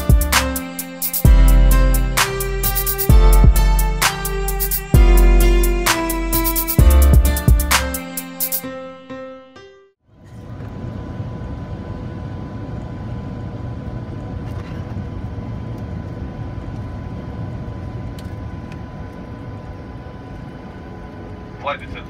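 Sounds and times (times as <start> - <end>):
airliner cabin rumble: 10.1 - 22.0.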